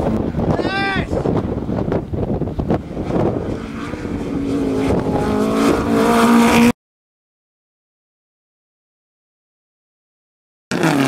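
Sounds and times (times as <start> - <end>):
rally car engine at high revs: 1.2 - 6.8, 10.7 - 11.0.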